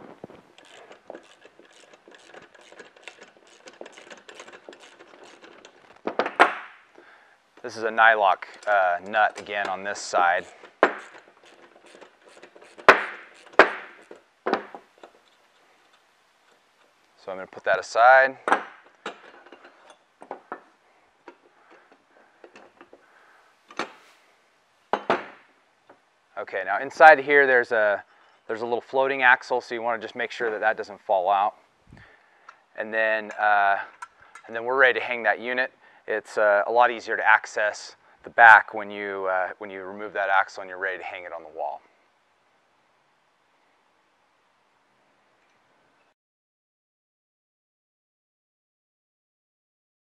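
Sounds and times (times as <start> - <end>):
metal winch parts clicking: 0.5 - 6.2, 7.6 - 17.0, 18.5 - 23.0
wrench clicking on metal nut: 0.6 - 5.8.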